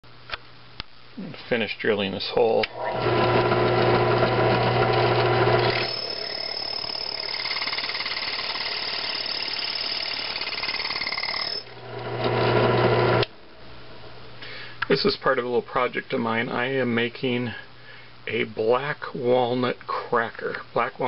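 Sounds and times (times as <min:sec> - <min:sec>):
drill press motor humming: 0:02.7 - 0:13.3
drill bit squealing through steel: 0:05.6 - 0:11.7.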